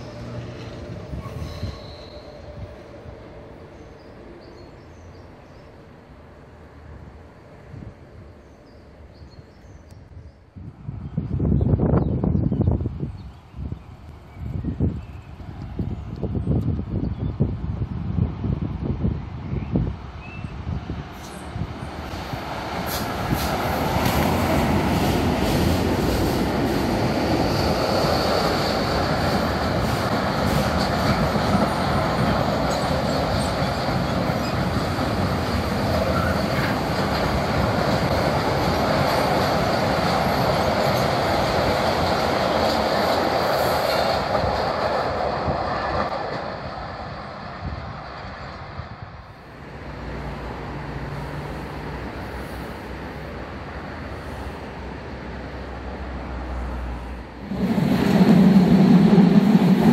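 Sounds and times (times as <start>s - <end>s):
freight train rumbling past: 0.0s - 59.9s
high wheel squeal: 1.1s - 2.5s, 35.9s - 36.8s.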